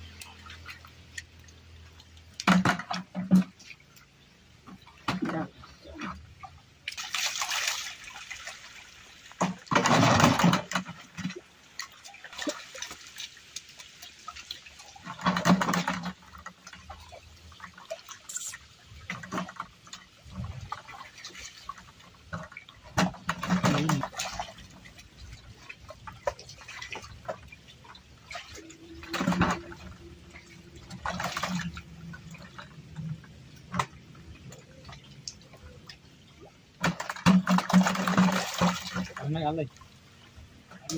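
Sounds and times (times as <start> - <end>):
continuous wash of water: 0.0 - 40.9
fish thrashing in water: 4.7 - 39.3
loud water splashes: 6.8 - 16.3, 20.3 - 32.6, 36.8 - 39.7.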